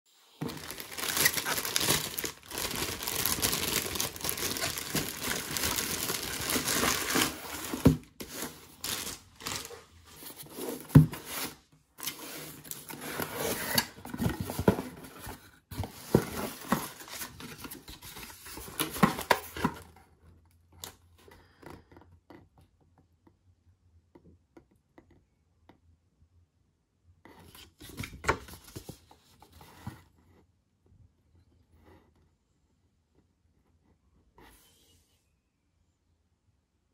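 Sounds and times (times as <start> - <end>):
food packaging rustling and tearing: 0.4 - 19.6.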